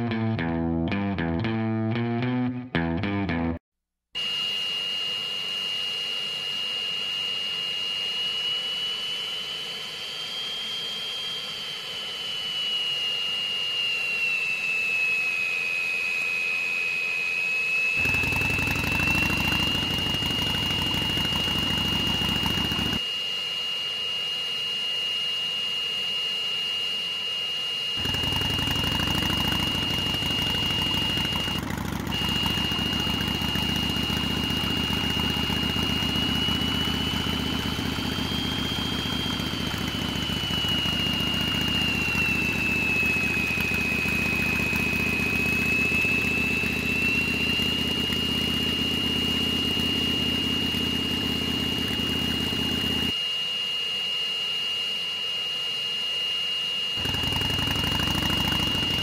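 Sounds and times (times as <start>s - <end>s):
high-pitched cartoon whine: 4.2s - 59.0s
engine-like low rumble: 18.0s - 23.0s, 28.0s - 53.2s.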